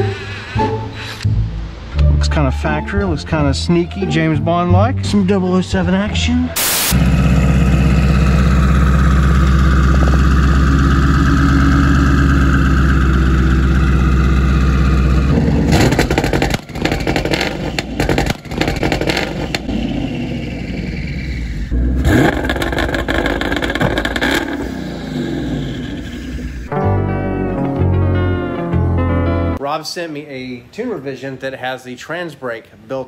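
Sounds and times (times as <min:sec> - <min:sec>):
car engine on rev limiter: 0:06.6 - 0:26.7
exhaust pops and bangs: 0:07.0 - 0:13.8, 0:15.3 - 0:19.9, 0:22.0 - 0:24.8.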